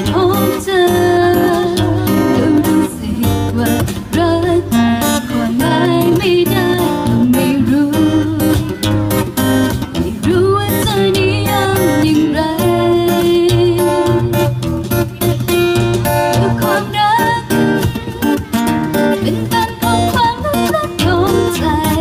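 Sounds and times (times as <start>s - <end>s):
faint drum kit: 0.0s - 22.0s
strummed acoustic guitar: 0.0s - 22.0s
people singing: 5.4s - 8.7s.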